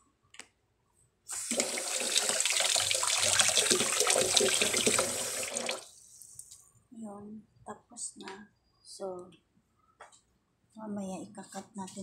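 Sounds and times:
tap water splashing into steel sink: 0:01.4 - 0:05.8.

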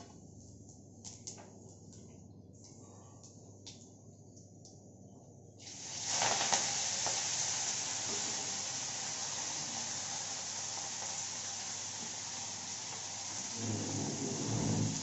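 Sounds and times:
hot oil sizzling: 0:05.6 - 0:15.0.

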